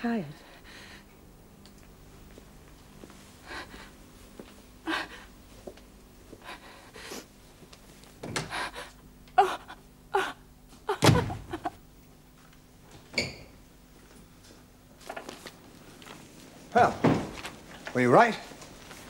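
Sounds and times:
woman sobbing: 8.5 - 11.8.

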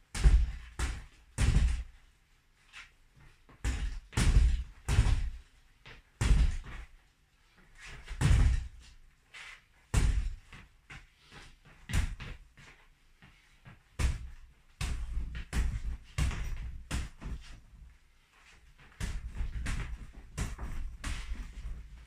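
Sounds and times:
punches on punching bags: 0.1 - 1.9, 3.6 - 5.4, 6.2 - 6.8, 8.1 - 8.8, 10.0 - 10.4, 11.9 - 12.4, 14.0 - 17.4, 18.9 - 21.9.

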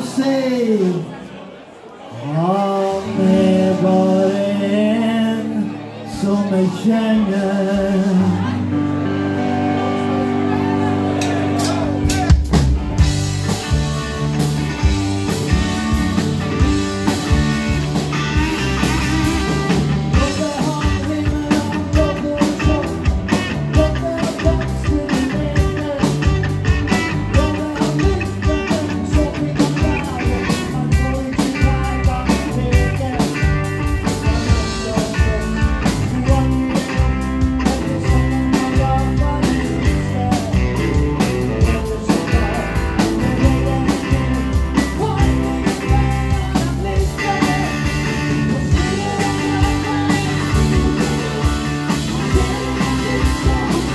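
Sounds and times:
blues-rock band playing: 2.6 - 53.9
drum kit beat: 11.2 - 53.9.

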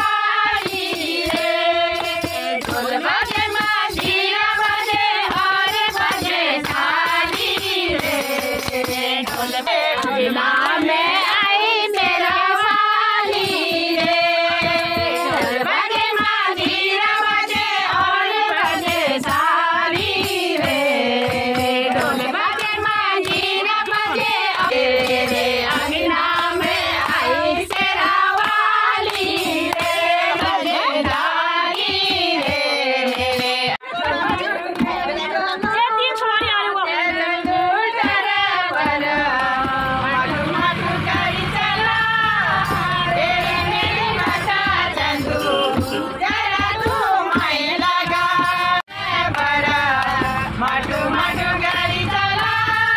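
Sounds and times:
hand clapping: 0.0 - 36.6, 37.4 - 41.3, 43.7 - 52.9
women singing together: 0.0 - 52.9.

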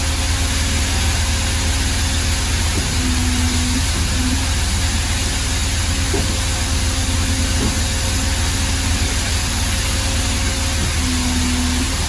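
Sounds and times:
machine hum with low drone: 0.0 - 12.0.

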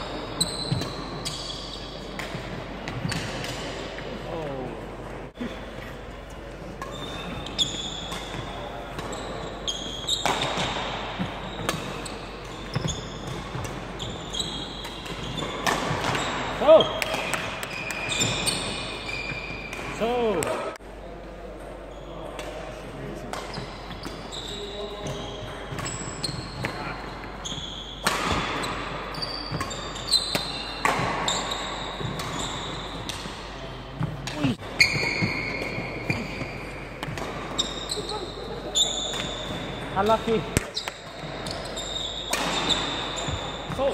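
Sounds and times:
shoes squeaking on court: 0.0 - 4.0, 5.4 - 20.6, 23.3 - 43.9
racket striking shuttlecock: 10.2 - 11.0.

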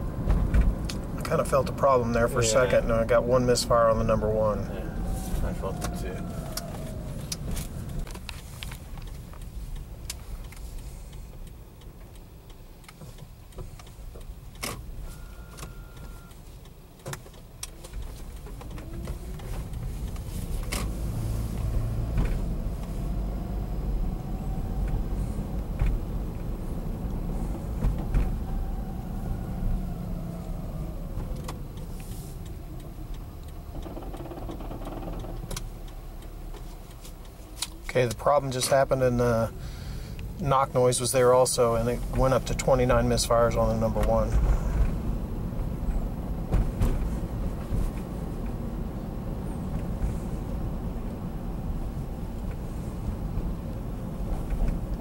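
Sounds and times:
rising and falling whine: 0.0 - 8.2, 21.0 - 31.8
low drivetrain rumble: 0.0 - 55.0
engine misfiring with knocking rattle: 30.6 - 39.5, 41.0 - 48.0.

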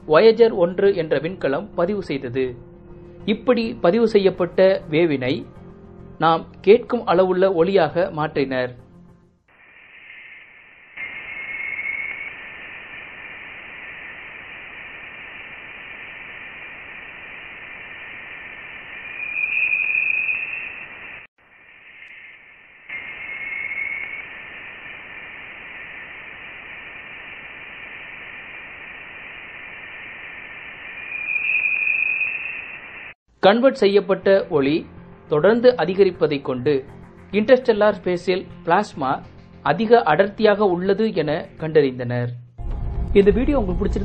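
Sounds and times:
steady hiss: 9.5 - 33.2.

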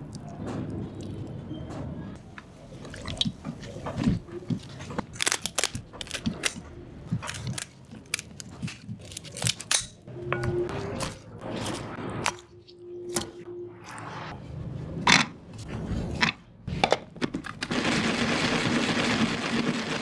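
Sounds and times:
shears cracking chicken bones: 4.6 - 10.0.

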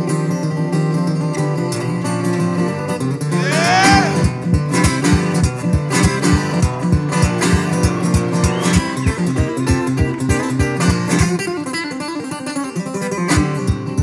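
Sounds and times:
acoustic guitar blues: 0.0 - 14.0
low thump keeping beat: 3.9 - 11.3.

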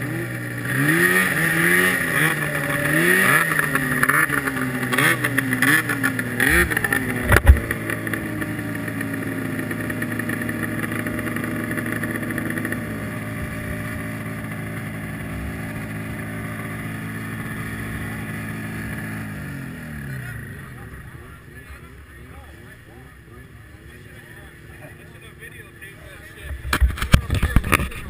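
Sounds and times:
snowmobile engine idling: 0.0 - 28.0
sharp thump: 7.2 - 7.8.

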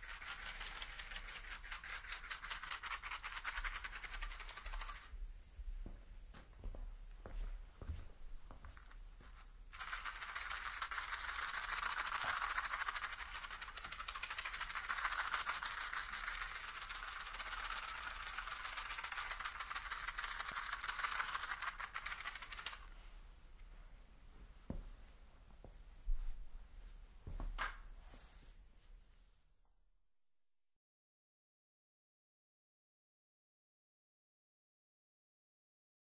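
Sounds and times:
matches rattling in a matchbox: 0.0 - 5.1, 8.8 - 23.0.

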